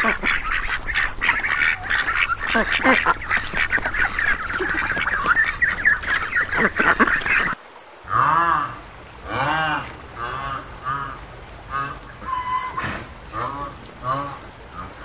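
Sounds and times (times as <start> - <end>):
hippopotamus calling: 0.0 - 7.6
ducks quacking: 0.0 - 15.0.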